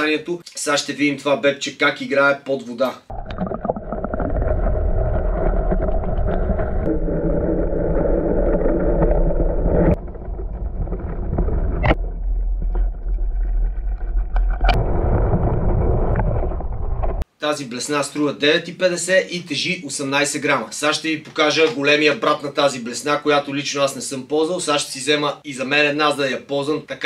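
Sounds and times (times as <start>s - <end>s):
muffled underwater rush: 3.1s - 17.2s.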